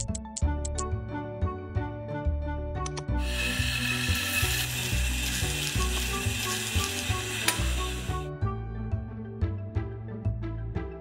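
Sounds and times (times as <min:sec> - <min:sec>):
coffee grinder whirring: 0:03.2 - 0:08.3.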